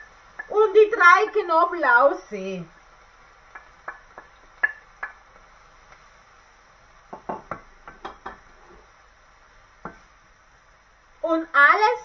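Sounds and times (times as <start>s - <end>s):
spoon knocking and scraping pan: 3.5s - 5.2s, 7.1s - 8.9s, 9.8s - 10.1s
wooden spoon tapping plate: 3.5s - 5.2s, 7.1s - 8.6s.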